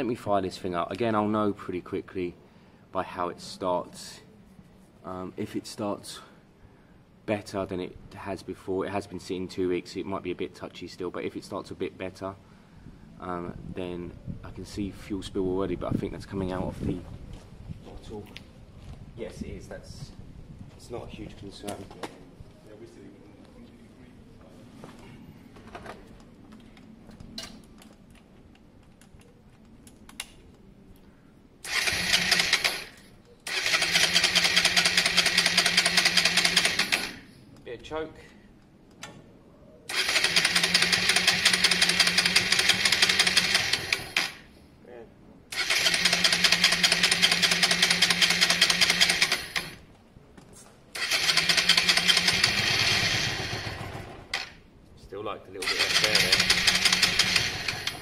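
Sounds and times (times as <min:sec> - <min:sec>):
electric starter cranking engine: 0:31.6 - 0:37.3, 0:39.9 - 0:44.5, 0:45.5 - 0:49.8, 0:51.0 - 0:54.6, 0:55.6 - 0:58.0.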